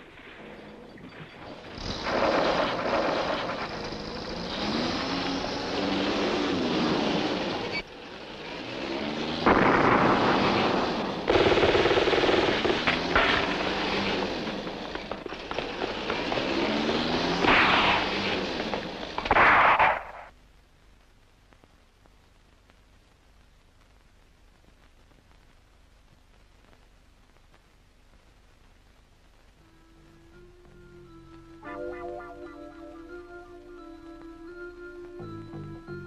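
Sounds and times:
heavy gunfire: 9.4 - 14.0, 19.2 - 20.3
explosions: 9.4 - 14.1, 17.3 - 18.3, 19.2 - 20.3.

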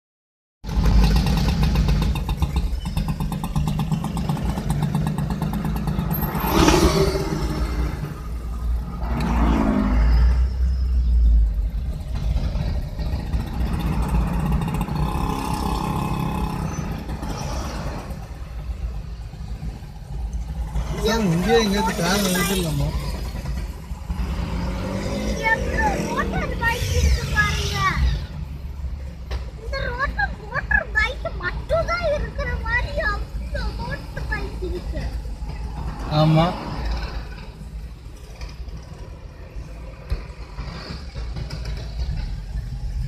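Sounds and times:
car engine rumble: 0.6 - 43.0
motorcycle engine revving: 0.7 - 10.5, 11.8 - 18.5, 19.8 - 28.4
scooters and motorcycles running: 0.7 - 43.0.

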